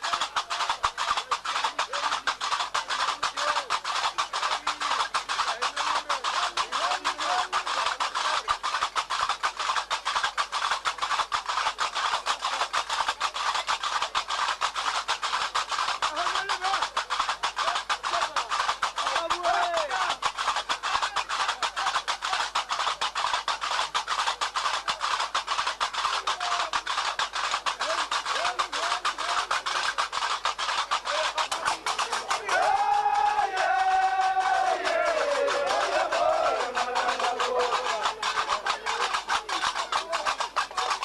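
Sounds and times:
fast drumming and percussion: 0.0s - 41.0s
faint voices: 30.9s - 41.0s.

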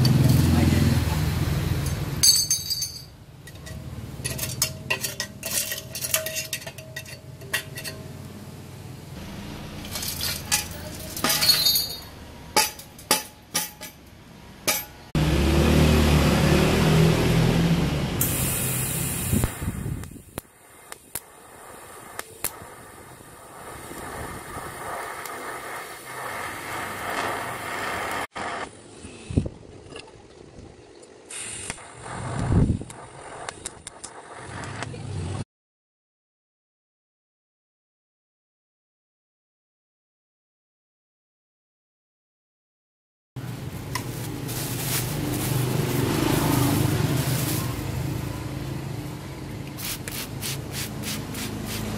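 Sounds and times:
metallic clinks of steel pieces: 1.8s - 8.1s, 9.8s - 14.1s
steady noise with low hum: 18.3s - 35.4s
welding clicks: 18.9s - 22.7s, 23.6s - 28.5s, 31.0s - 35.0s.

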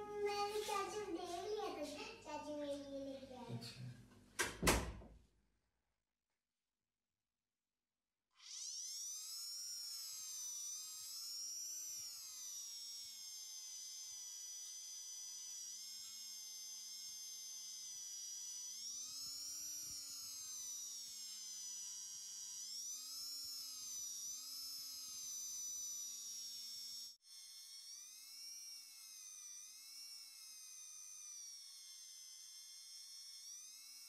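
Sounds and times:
polishing wheel rubbing metal: 0.1s - 1.9s
rotary tool whining: 8.4s - 34.0s.

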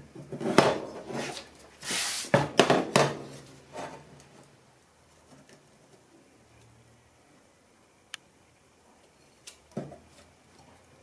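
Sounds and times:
rustling scrape: 0.4s - 2.4s.

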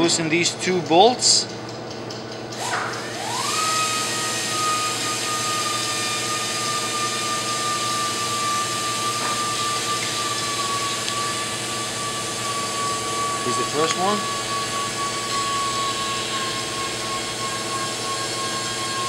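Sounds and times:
motor whining: 2.6s - 19.0s.

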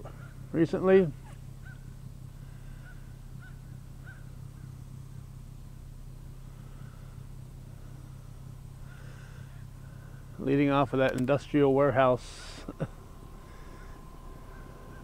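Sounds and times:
steady low hum: 0.0s - 15.0s
short bird calls: 1.1s - 5.2s, 13.3s - 15.0s.

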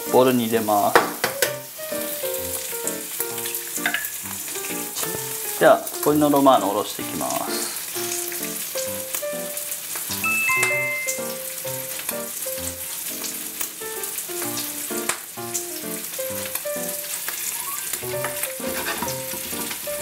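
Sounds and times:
instrumental background music: 0.0s - 20.0s
meat sizzling in a pan: 0.0s - 20.0s.

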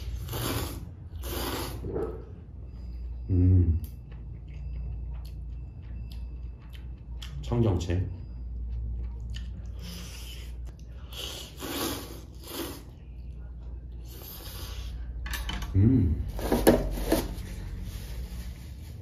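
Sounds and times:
person slurping noodles: 0.0s - 1.9s, 11.1s - 12.9s.

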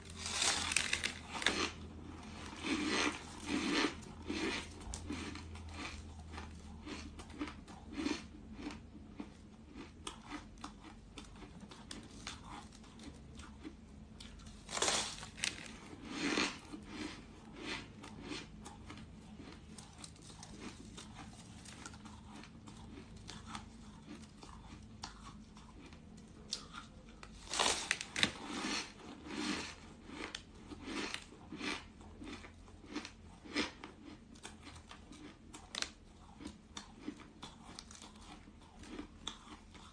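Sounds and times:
chewing crunchy ice: 0.0s - 39.9s.

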